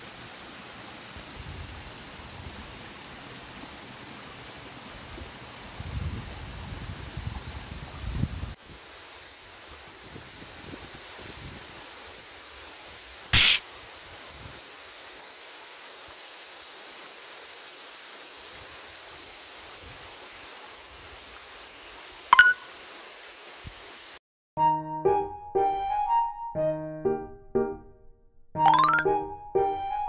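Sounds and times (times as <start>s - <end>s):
sharp click: 13.4s - 13.6s.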